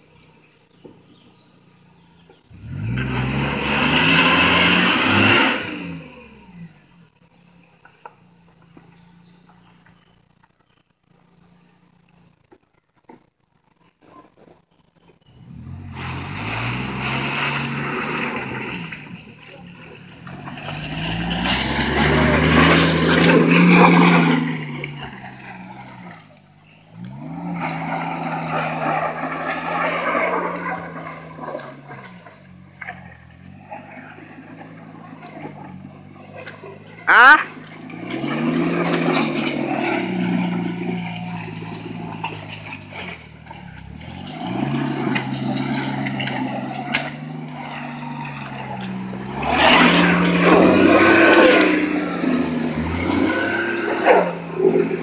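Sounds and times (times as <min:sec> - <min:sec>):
van engine revving hard: 0:02.4 - 0:06.9, 0:15.3 - 0:32.5, 0:33.4 - 0:55.0.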